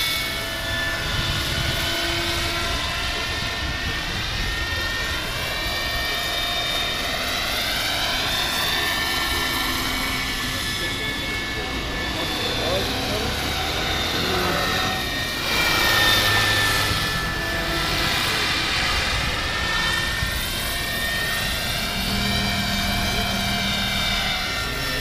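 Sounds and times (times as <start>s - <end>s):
model helicopter whine: 0.0s - 25.0s
rotor rushing: 0.0s - 25.0s.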